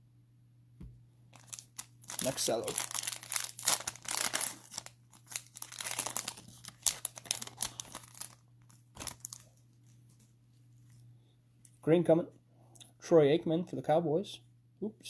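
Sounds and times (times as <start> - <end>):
cellophane crinkling and tearing: 1.3 - 10.2.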